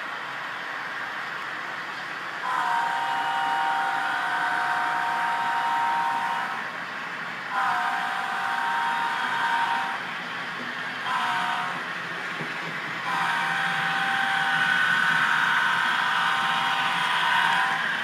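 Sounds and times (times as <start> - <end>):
steady hiss and running noise: 0.0 - 18.0
model train horn blasts: 2.4 - 6.7, 7.5 - 10.0, 11.1 - 11.8, 13.0 - 17.9.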